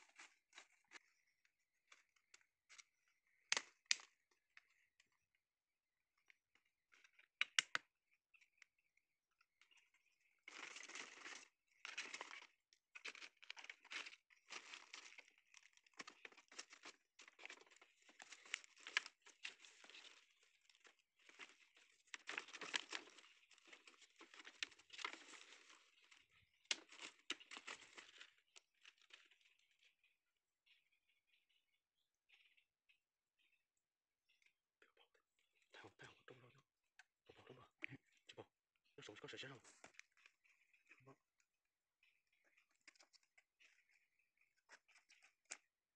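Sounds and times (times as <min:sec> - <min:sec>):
dry bamboo leaves rustling: 0:10.5 - 0:12.4, 0:13.0 - 0:28.3.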